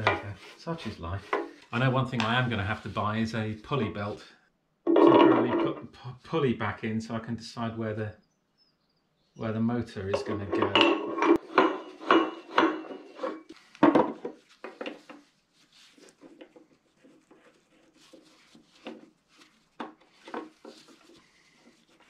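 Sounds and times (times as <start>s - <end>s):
metal scraping and light taps: 0.0s - 4.2s, 4.9s - 5.8s, 9.9s - 15.3s, 15.9s - 22.0s
metal lathe parts clanking: 10.1s - 14.1s.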